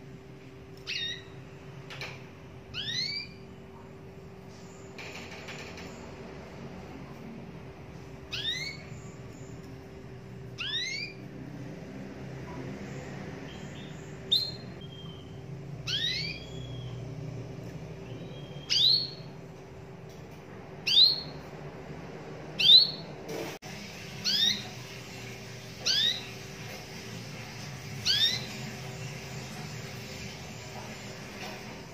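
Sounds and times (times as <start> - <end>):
canary chirping: 0.8 - 6.2, 7.9 - 19.5, 20.8 - 21.6, 22.6 - 23.2, 23.9 - 31.9.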